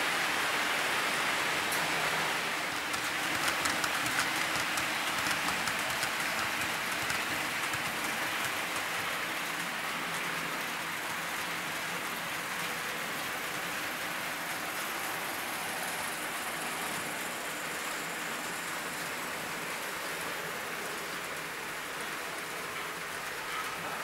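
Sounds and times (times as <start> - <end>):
model train wheels hissing on rails: 1.0 - 24.0
wheels ticking over rail joints: 2.8 - 12.7.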